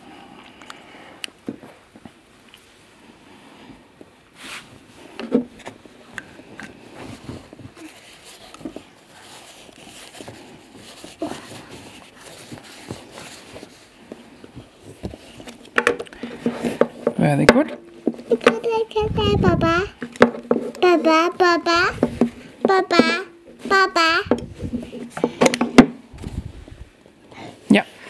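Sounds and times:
paper towel rustling: 6.8s - 15.7s
child's voice: 18.4s - 20.0s, 20.8s - 24.4s.

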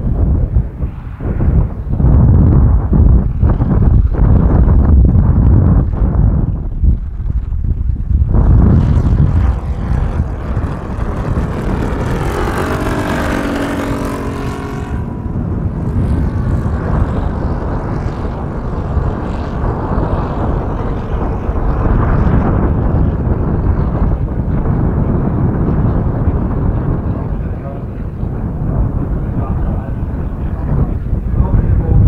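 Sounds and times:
wind noise on microphone: 0.0s - 32.0s
model plane engine: 8.4s - 31.8s.

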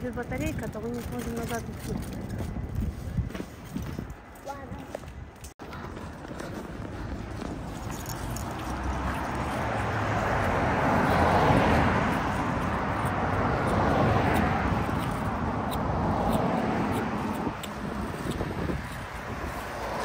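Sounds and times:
cars passing close by: 6.2s - 20.0s.

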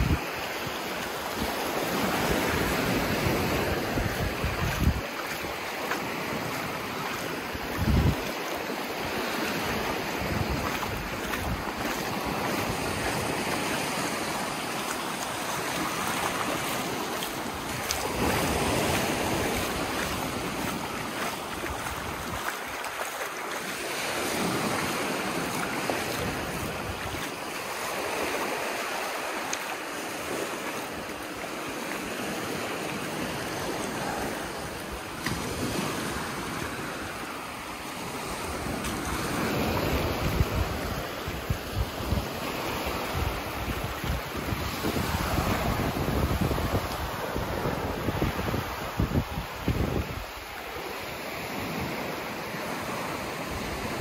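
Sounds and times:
wind rumbling on microphone: 0.0s - 22.9s, 23.7s - 29.0s, 38.0s - 50.6s
waves washing on sandy shore: 0.0s - 54.0s.

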